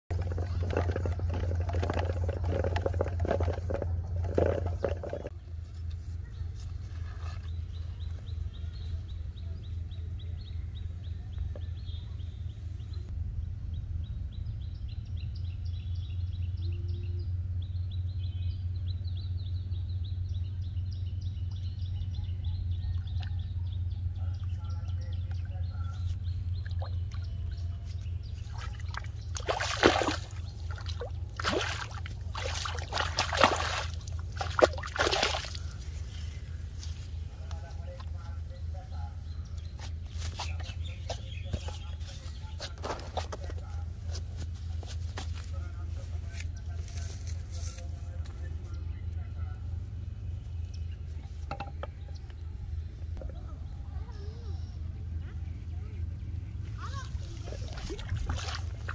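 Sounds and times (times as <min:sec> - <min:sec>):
fish splashing and thrashing: 0:00.0 - 0:05.3, 0:28.2 - 0:36.6, 0:57.0 - 0:58.9
steady low rumble: 0:07.5 - 0:58.9.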